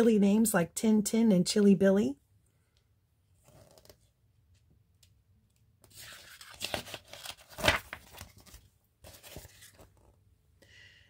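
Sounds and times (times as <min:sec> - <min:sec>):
book page turning: 0:03.4 - 0:04.1, 0:05.8 - 0:10.2.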